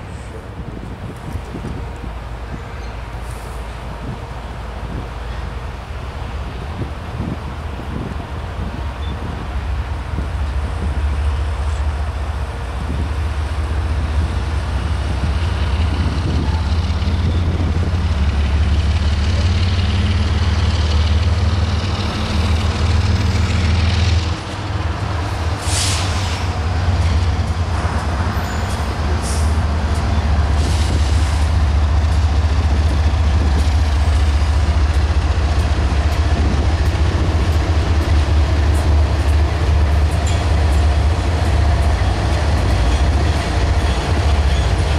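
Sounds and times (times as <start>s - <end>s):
diesel locomotives rumbling past: 0.0s - 44.9s
brief hiss: 25.6s - 26.5s.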